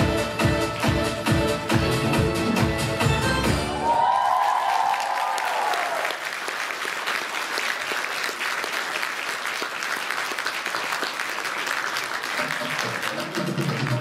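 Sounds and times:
audience applauding: 3.6s - 14.0s.

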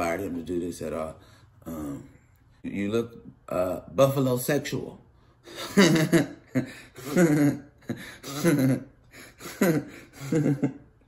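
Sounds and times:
man laughing hard: 5.5s - 10.9s.

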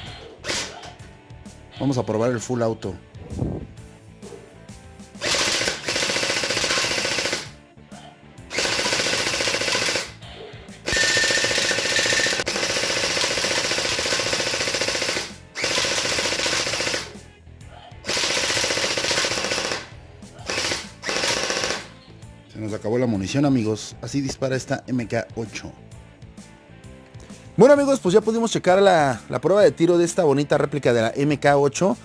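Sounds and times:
electric gel blaster firing: 10.9s - 17.1s.

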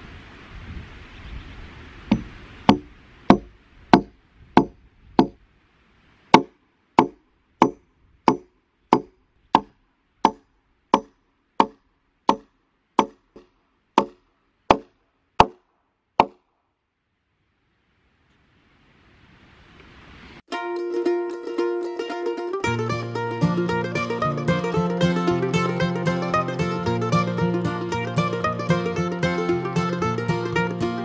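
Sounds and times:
hammer driving nail into wood: 2.1s - 5.4s.

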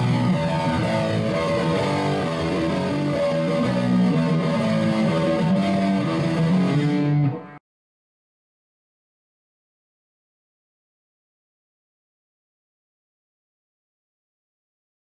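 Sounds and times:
guitar music with bass: 0.0s - 7.6s.

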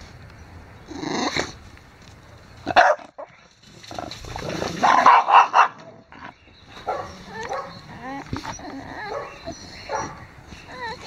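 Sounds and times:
dog barking: 2.7s - 3.3s, 4.8s - 5.9s, 6.8s - 7.8s, 9.0s - 10.2s.

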